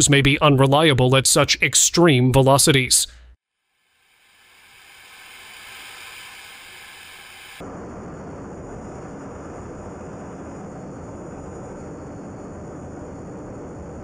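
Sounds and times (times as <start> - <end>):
thin high hiss: 3.7 - 7.6.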